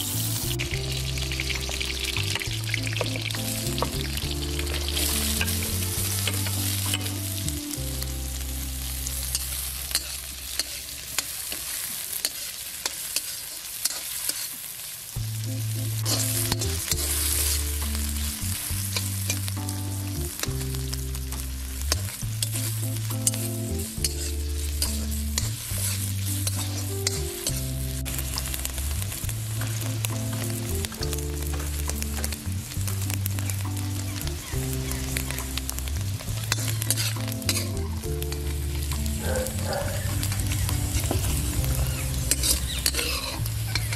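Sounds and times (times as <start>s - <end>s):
background melody: 0.0s - 10.9s, 15.2s - 43.9s
food sizzling in hot oil: 0.0s - 43.9s
ladle scraping a wok: 9.2s - 14.6s, 22.0s - 28.6s, 34.9s - 43.9s.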